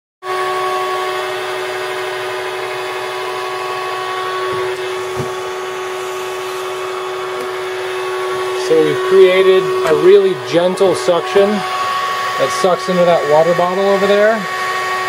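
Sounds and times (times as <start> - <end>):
vacuum motor whining: 0.2 - 15.0.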